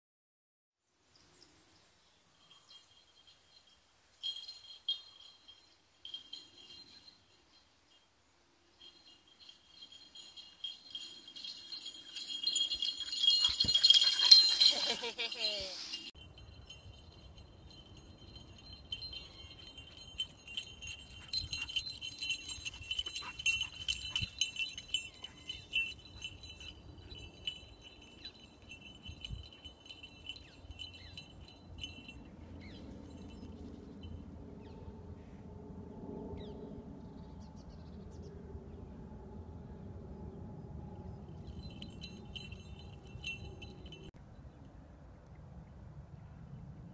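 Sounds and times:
bells jingling: 0:02.3 - 0:34.7, 0:41.0 - 0:44.2.

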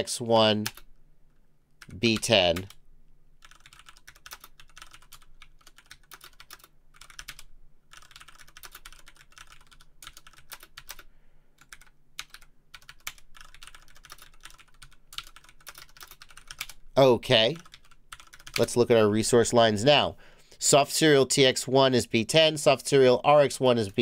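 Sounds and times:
typing on a computer keyboard: 0:00.6 - 0:00.9, 0:03.4 - 0:16.8, 0:17.6 - 0:18.7.

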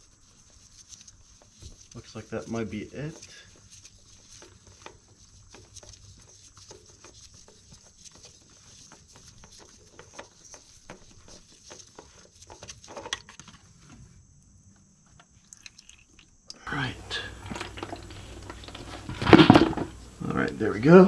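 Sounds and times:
oil dripping: 0:00.0 - 0:12.8, 0:15.2 - 0:21.0
faint high hiss: 0:13.5 - 0:21.0.

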